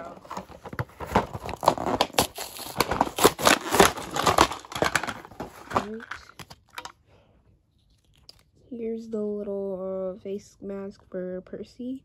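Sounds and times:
plastic packaging crinkling: 0.0s - 6.9s.

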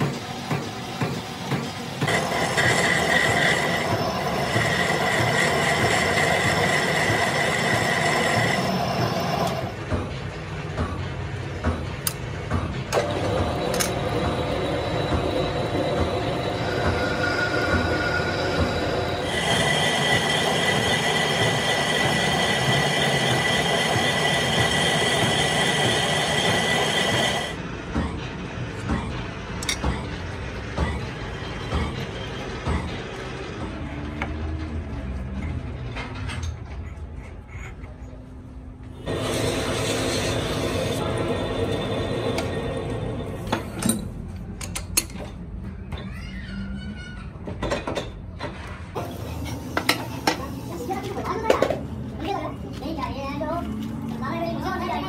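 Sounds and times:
metal lathe cutting whine: 0.3s - 9.7s, 13.0s - 27.6s, 39.1s - 43.6s.

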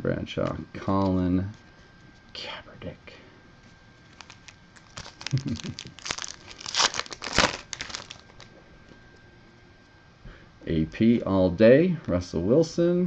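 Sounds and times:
wrapper tearing and crinkling: 4.1s - 8.5s.

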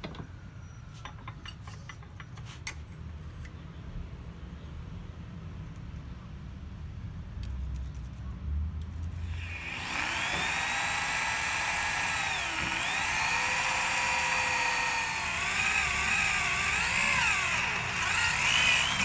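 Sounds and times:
electric drill boring through metal: 9.2s - 19.0s.

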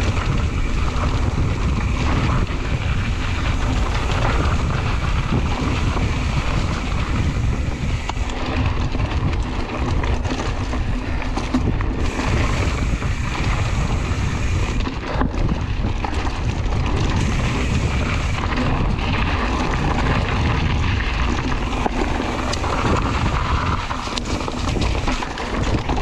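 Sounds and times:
mountain bike rumbling on dirt: 0.0s - 26.0s
wind buffeting microphone: 0.0s - 26.0s.

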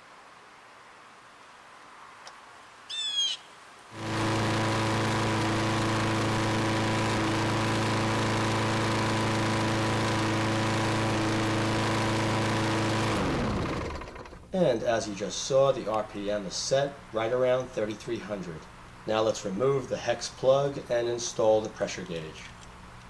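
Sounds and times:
lawn mower engine running: 3.9s - 18.9s.

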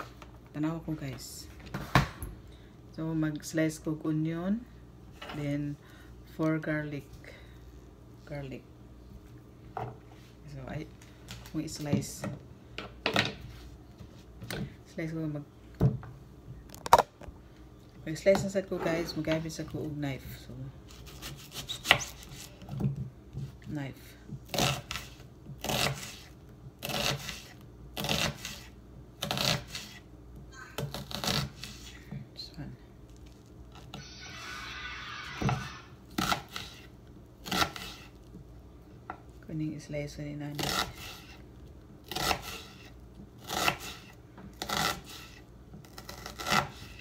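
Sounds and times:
knife slicing onion on cutting board: 20.9s - 22.7s, 24.5s - 30.1s, 30.8s - 31.9s, 36.1s - 38.2s, 40.6s - 41.4s, 42.1s - 47.0s.

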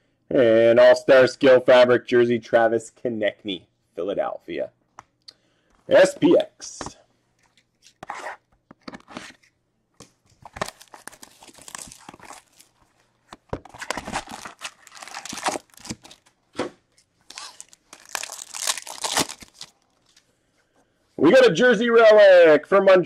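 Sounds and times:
cardboard box tearing and crinkling: 10.5s - 12.7s, 13.7s - 16.3s, 17.3s - 19.7s
foil packs rustling: 10.5s - 13.1s, 13.7s - 16.3s, 17.2s - 20.2s.

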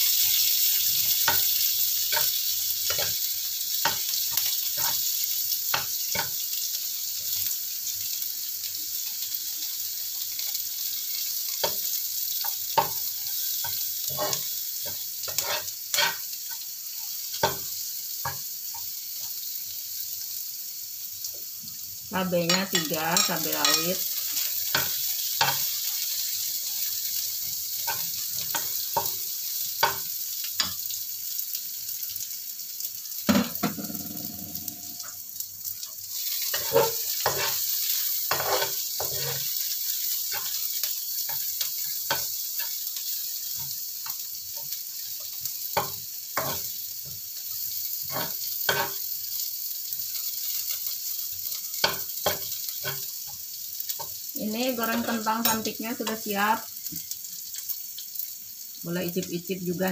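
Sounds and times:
spice paste sizzling in oil: 0.0s - 59.9s
metal spatula scraping pan: 15.3s - 16.2s, 38.3s - 39.5s.

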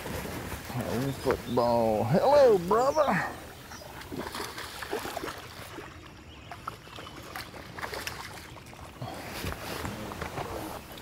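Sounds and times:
fish splashing in water: 3.1s - 9.0s.

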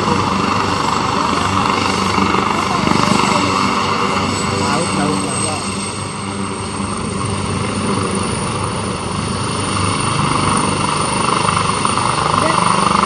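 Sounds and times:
helicopter rotor noise: 0.0s - 13.0s
helicopter turbine whine: 0.0s - 13.0s.

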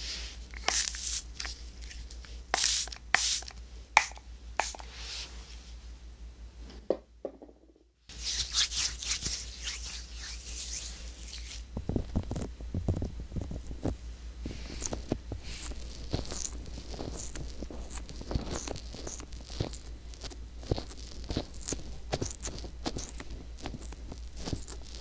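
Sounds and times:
hands rubbing together: 0.5s - 5.3s, 8.1s - 11.7s.

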